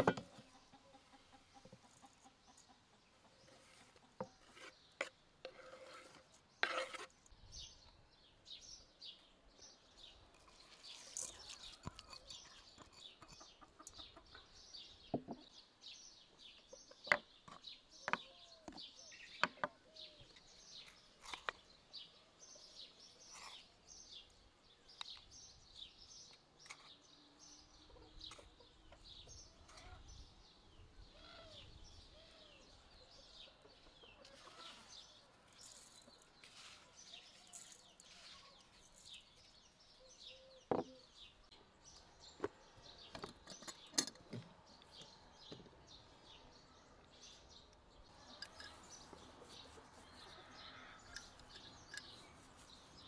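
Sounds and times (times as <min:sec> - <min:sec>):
clucking calls: 0:00.0 - 0:04.2, 0:13.2 - 0:14.5
small birds chirping: 0:00.0 - 0:53.0.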